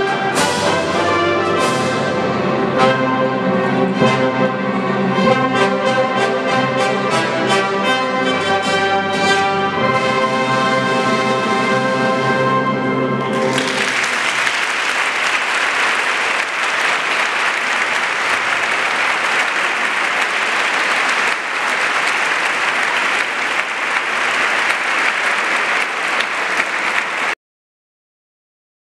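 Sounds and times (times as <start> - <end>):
audience applauding: 13.2 - 27.4.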